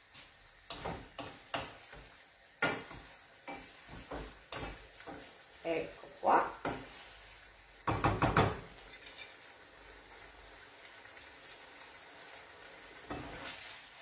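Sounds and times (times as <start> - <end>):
pasta sizzling in frying pan: 0.0 - 14.0
pasta tossed in pan: 0.2 - 5.7, 6.5 - 14.0
wooden spoon knocking on pan: 0.7 - 5.3, 6.5 - 7.0, 7.8 - 8.8.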